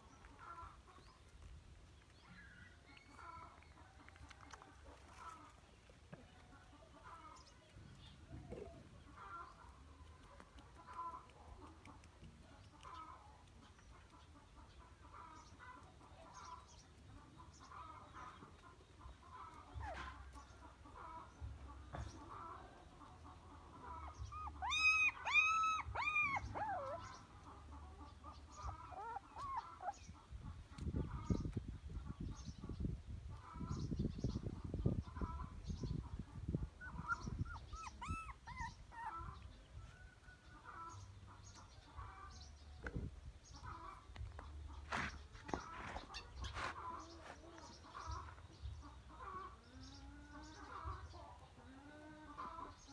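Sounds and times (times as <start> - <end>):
faint chickens clucking: 0.0 - 52.9
puppy whimpering: 24.0 - 27.1, 28.7 - 30.0, 36.8 - 39.4.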